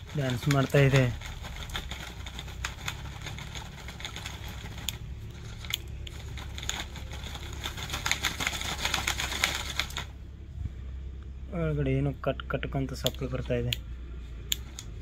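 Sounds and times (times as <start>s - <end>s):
gears clicking and cracking: 0.0s - 10.1s.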